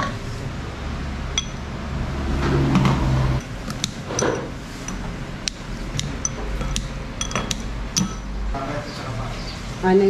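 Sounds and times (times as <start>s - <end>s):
low steady drone: 0.0s - 10.0s
steady low hum: 0.0s - 10.0s
soup ladle and bowl: 2.6s - 8.4s.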